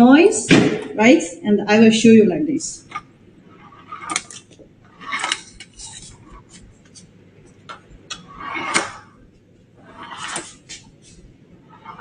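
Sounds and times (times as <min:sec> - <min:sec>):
metal door roller rolling: 0:03.6 - 0:05.9, 0:09.8 - 0:10.6.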